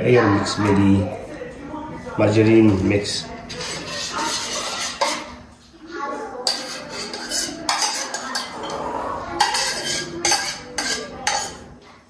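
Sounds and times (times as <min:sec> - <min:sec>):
spoon scraping ceramic bowl: 0:03.5 - 0:05.4, 0:06.4 - 0:11.7.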